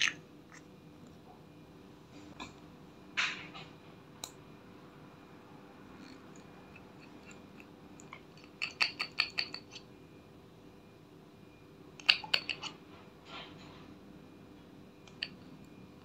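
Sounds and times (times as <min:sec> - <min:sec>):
glass bottle cap clicks and taps: 0:07.2 - 0:09.8.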